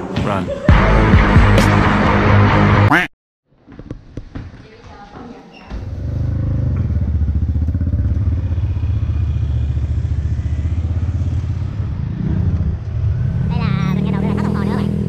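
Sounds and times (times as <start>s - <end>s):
scooter engine rumble: 5.8s - 15.0s.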